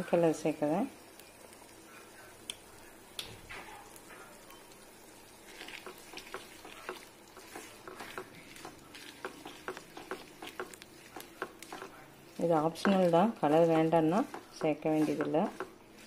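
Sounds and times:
syrup bubbling and sizzling: 0:00.0 - 0:16.0
spatula scraping and tapping pan: 0:05.5 - 0:16.0.

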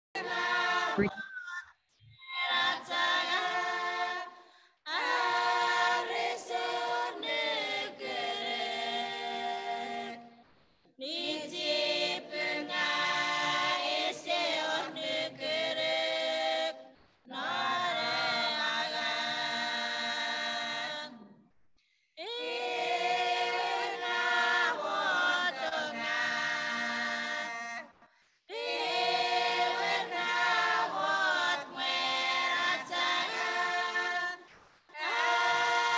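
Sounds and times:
women singing a hymn: 0:00.2 - 0:01.2, 0:02.2 - 0:21.4, 0:22.2 - 0:35.9.

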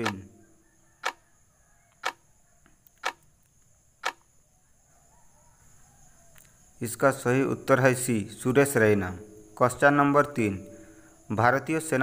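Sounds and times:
clock-like ticks: 0:00.0 - 0:00.2, 0:02.0 - 0:02.2, 0:03.0 - 0:03.2.

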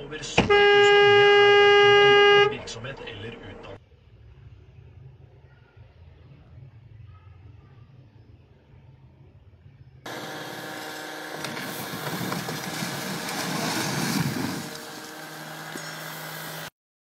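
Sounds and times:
engine hum: 0:10.0 - 0:16.7
concrete cracking and collapsing: 0:11.3 - 0:14.8.

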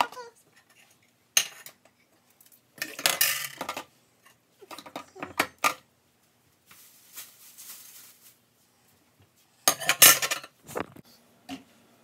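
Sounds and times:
dishes and utensils clattering: 0:00.0 - 0:02.0, 0:02.8 - 0:05.9, 0:09.6 - 0:10.6
soft rustle: 0:06.2 - 0:09.6.

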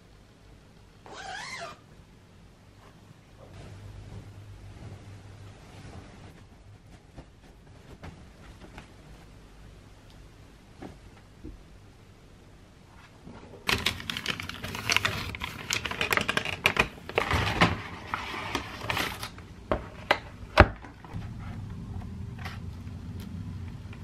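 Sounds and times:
paper bag rustling: 0:13.7 - 0:19.4.

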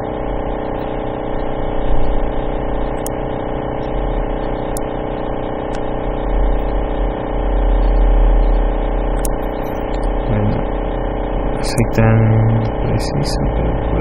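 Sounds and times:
steady tonal hum: 0:00.0 - 0:14.0
low rumble: 0:10.0 - 0:14.0.

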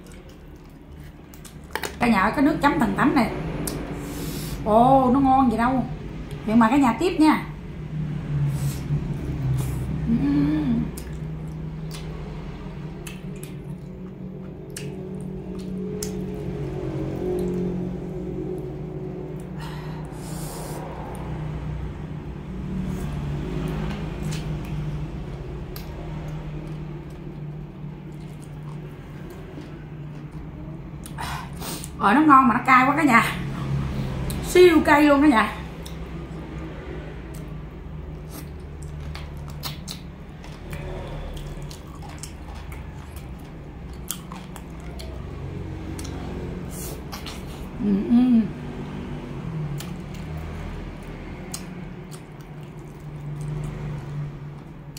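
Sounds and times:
wet chewing and lip-smacking: 0:00.0 - 0:02.0, 0:10.9 - 0:19.6, 0:23.0 - 0:31.2, 0:35.7 - 0:47.8, 0:49.6 - 0:54.9
steady low hum: 0:00.0 - 0:54.9
mouth clicks and smacks: 0:13.0 - 0:16.2, 0:38.2 - 0:45.2, 0:49.8 - 0:54.0
person biting and chewing: 0:38.2 - 0:45.2.

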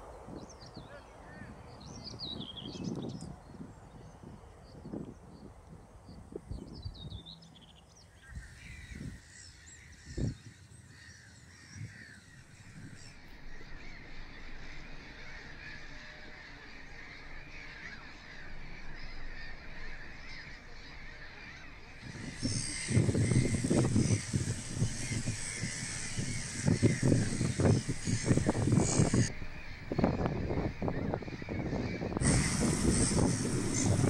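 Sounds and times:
wind buffeting microphone: 0:00.0 - 0:34.0
gull colony calling: 0:08.2 - 0:34.0.

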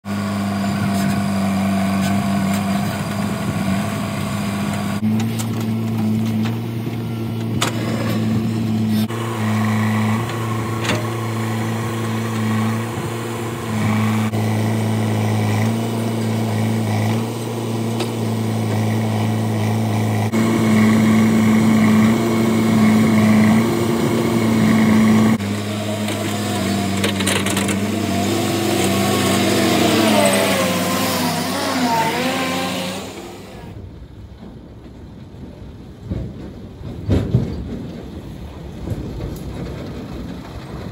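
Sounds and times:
backhoe diesel engine running: 0:00.1 - 0:40.9
engine revving up: 0:07.5 - 0:33.8.

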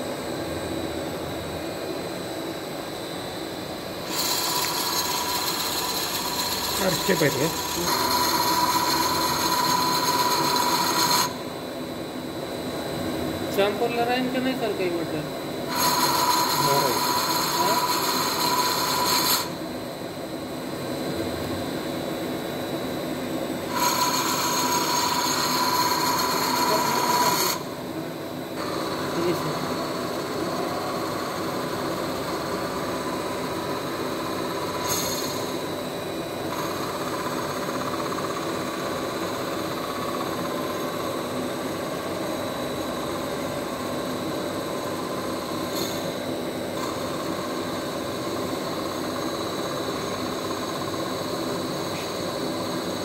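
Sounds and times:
lathe running with high whine: 0:00.2 - 0:53.0
lathe cutting workpiece: 0:04.0 - 0:11.4, 0:15.7 - 0:19.6, 0:23.7 - 0:27.8, 0:28.6 - 0:35.6.

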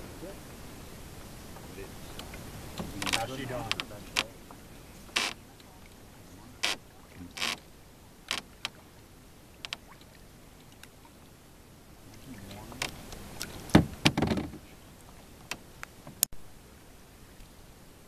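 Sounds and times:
paddle knocking against canoe: 0:01.5 - 0:07.6, 0:12.1 - 0:16.3.

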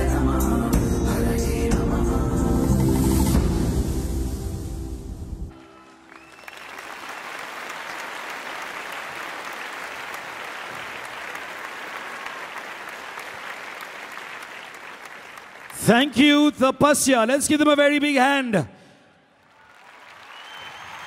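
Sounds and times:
audience applauding: 0:05.6 - 0:16.4, 0:19.4 - 0:21.0.

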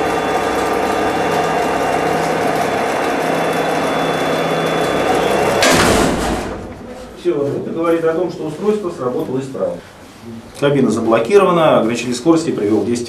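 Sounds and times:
elevator hoist motor humming: 0:00.0 - 0:07.2
sharp mechanical clunk: 0:05.6 - 0:06.8.

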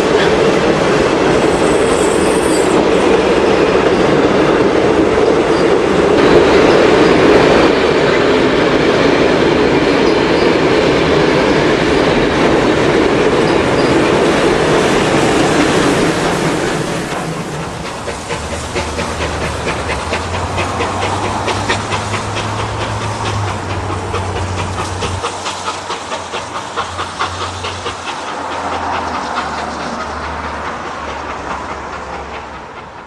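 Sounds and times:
steam hiss: 0:00.0 - 0:03.2, 0:05.4 - 0:33.0
steam locomotive exhaust beats: 0:00.0 - 0:33.0
train wheel clatter: 0:00.0 - 0:33.0.

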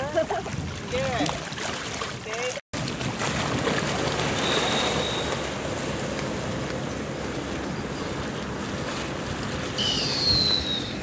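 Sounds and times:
water splashing and rushing: 0:00.0 - 0:11.0
brief high whistle-like tone: 0:04.4 - 0:05.4, 0:09.8 - 0:11.0.

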